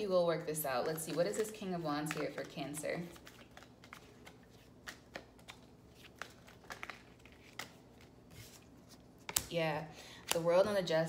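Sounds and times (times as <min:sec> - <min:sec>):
cards being shuffled: 0:00.7 - 0:09.5.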